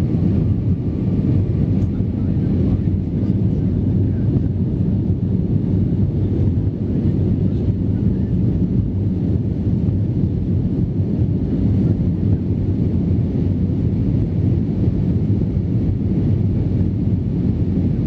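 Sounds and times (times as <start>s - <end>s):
jet engines rumbling: 0.0s - 18.0s.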